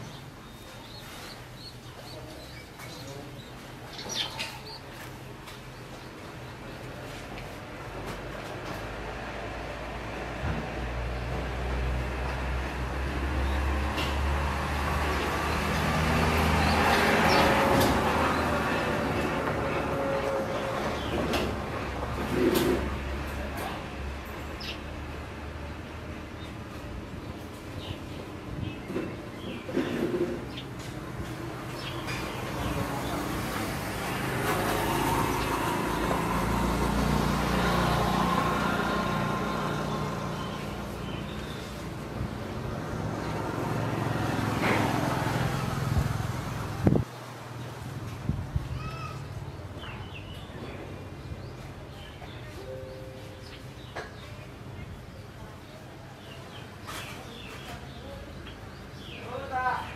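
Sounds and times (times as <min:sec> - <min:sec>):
vehicle passing: 0:06.9 - 0:48.6.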